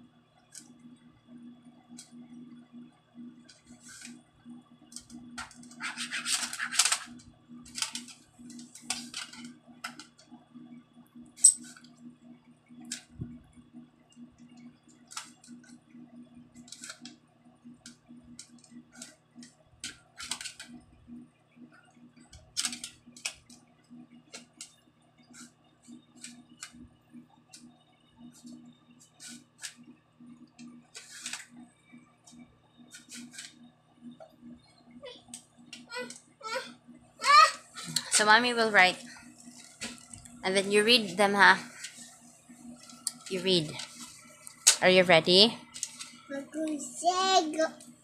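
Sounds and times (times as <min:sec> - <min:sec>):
steady low hum: 0:00.0 - 0:48.0.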